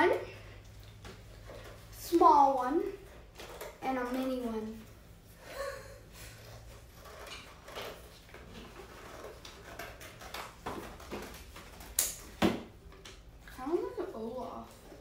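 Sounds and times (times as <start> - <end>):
scissors cutting cardboard: 6.4 - 12.2.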